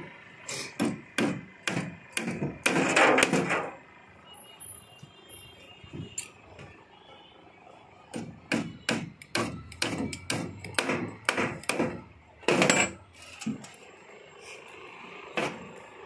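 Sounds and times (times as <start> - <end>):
hammer knocking on wooden boards: 0.8 - 3.5, 8.2 - 12.9.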